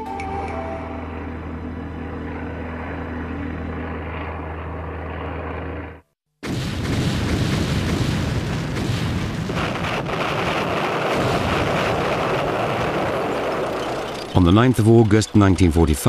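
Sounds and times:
low droning engine hum: 0.0 - 6.0, 12.1 - 16.0
loud dense rumbling: 6.8 - 16.0.

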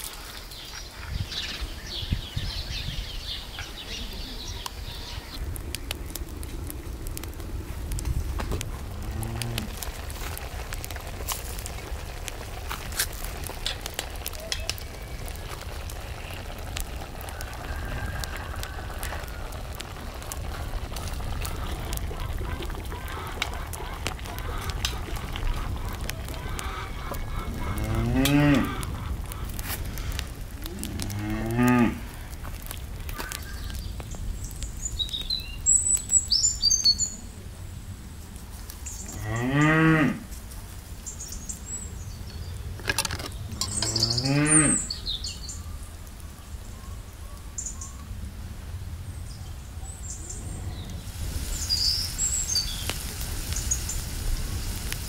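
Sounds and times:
cow mooing: 27.7 - 28.8, 43.7 - 44.8.

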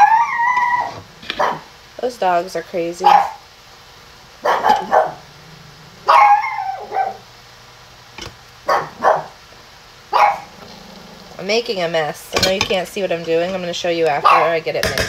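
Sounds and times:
dogs barking: 0.0 - 1.8, 3.0 - 3.5, 4.4 - 7.4, 8.6 - 9.4, 10.1 - 10.8, 14.2 - 14.6.

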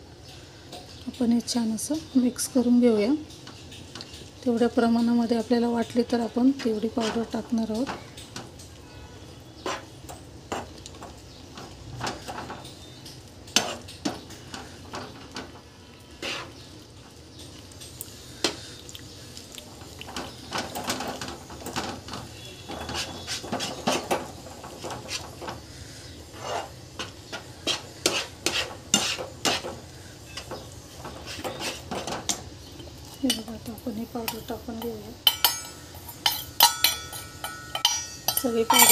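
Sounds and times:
spatula scraping non-stick pan: 6.6 - 8.3, 9.0 - 15.2, 16.1 - 16.8, 20.2 - 33.5.

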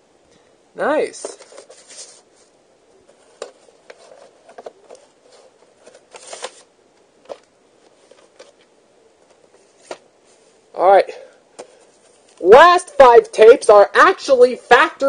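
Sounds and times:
paper rustle: 1.2 - 2.5, 3.1 - 6.7.

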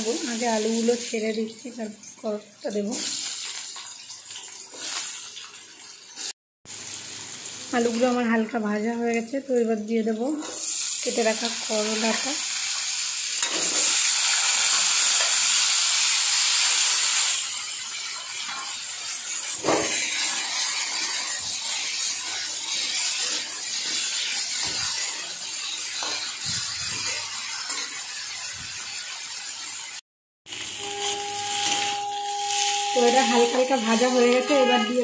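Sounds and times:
vegetables sizzling in oil: 0.0 - 35.0
metal spatula scraping pan: 30.6 - 35.0.

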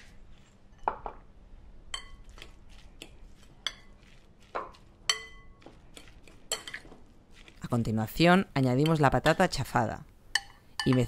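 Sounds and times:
fork mixing minced meat: 2.0 - 8.2
fork clinking against glass: 5.1 - 5.6.

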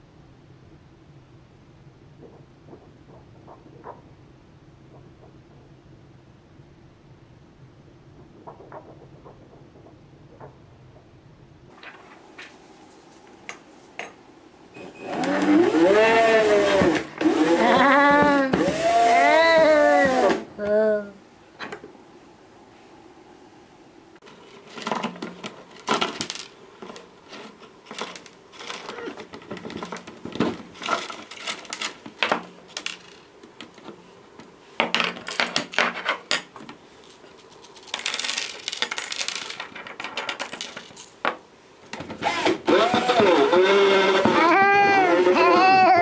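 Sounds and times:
coins clinking on a table: 34.9 - 41.2.

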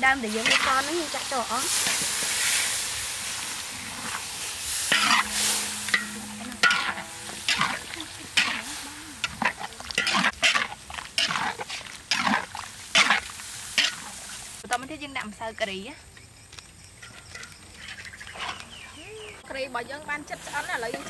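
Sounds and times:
light frying sizzle: 0.0 - 21.0
metal ladle scraping a wok: 0.2 - 14.6, 20.4 - 21.0.

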